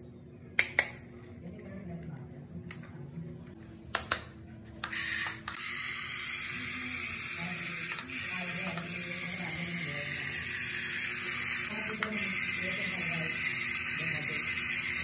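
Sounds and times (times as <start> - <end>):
toy motor and gears whirring: 4.8 - 15.0.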